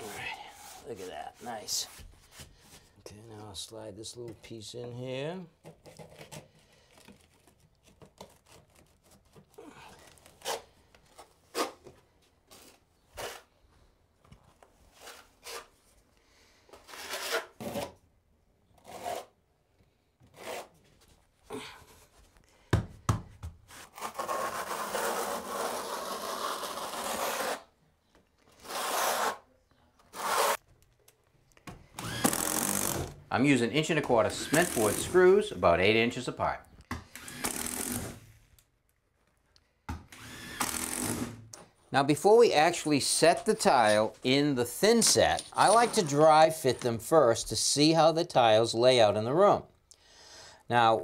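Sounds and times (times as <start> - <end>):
trowel scraping mortar: 16.8 - 18.0, 23.7 - 27.7, 30.1 - 30.6, 44.7 - 46.8.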